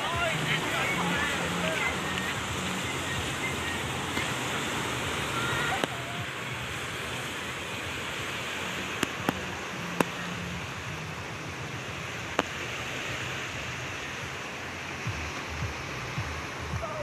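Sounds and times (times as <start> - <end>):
waves breaking on beach: 0.0 - 17.0
low rumbles: 14.6 - 17.0.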